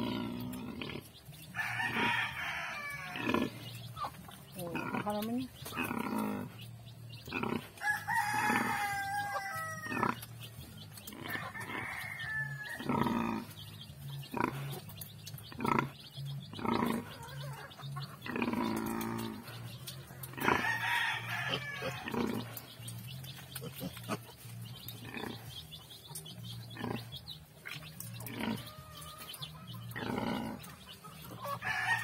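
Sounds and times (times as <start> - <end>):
rooster crowing: 1.6 - 3.3, 7.8 - 10.0, 11.3 - 12.9, 20.6 - 22.0, 31.6 - 32.0.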